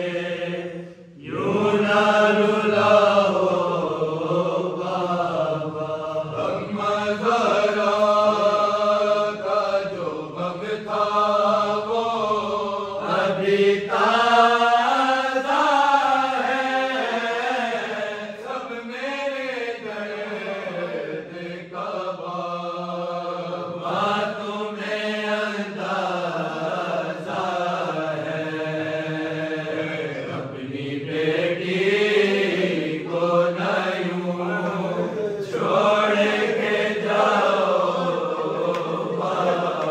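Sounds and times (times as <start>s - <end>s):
men chanting a lament: 0.0s - 39.9s.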